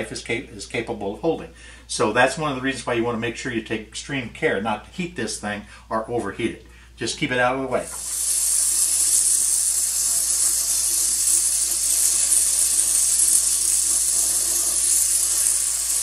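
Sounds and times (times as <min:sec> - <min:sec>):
torch flame hissing: 0:07.9 - 0:16.0.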